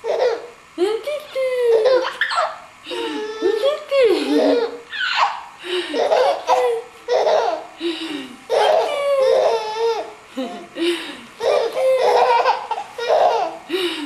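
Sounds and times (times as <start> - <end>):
baby laughing: 0.0 - 0.5, 1.7 - 7.7, 8.5 - 10.7, 11.4 - 13.7.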